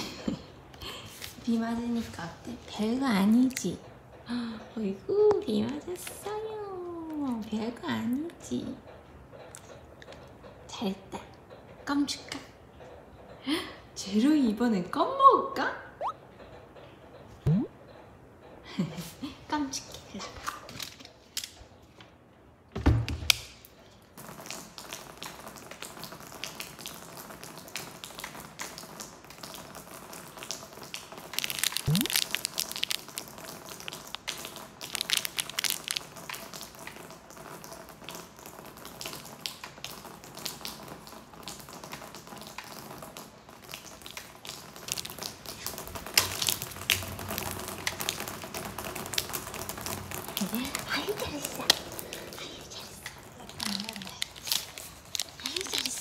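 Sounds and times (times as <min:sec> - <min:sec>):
rain pattering: 0:00.0 - 0:12.6, 0:23.9 - 0:56.0.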